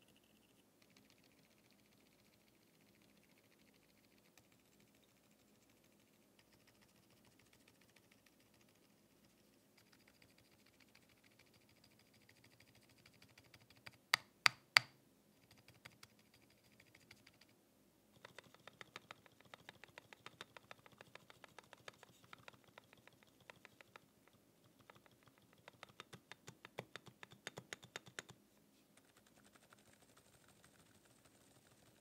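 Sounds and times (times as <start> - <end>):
sharp keyboard clicks: 18.2 - 24.0, 24.7 - 28.4, 29.0 - 32.0.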